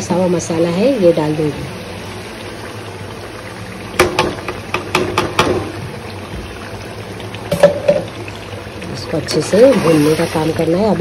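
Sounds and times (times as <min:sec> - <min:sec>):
metal knocks on pot: 0:04.0 - 0:05.8, 0:07.5 - 0:08.1
paste sizzling in oil: 0:08.9 - 0:11.0.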